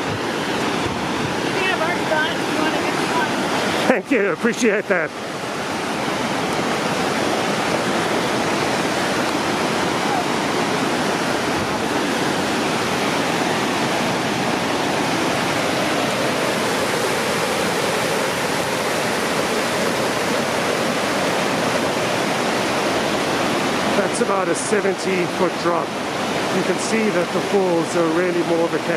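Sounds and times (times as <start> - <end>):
waterfall rushing: 0.0 - 28.9.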